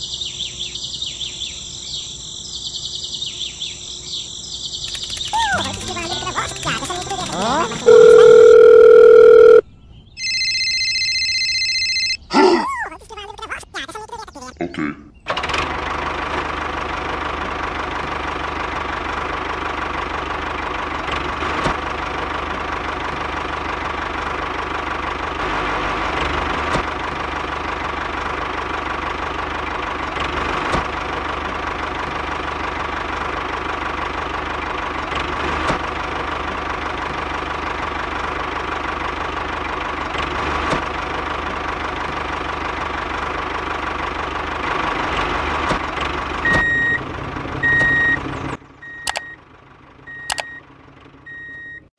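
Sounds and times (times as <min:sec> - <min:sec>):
engine idling with knocking chug: 0:15.3 - 0:25.2, 0:26.8 - 0:44.9.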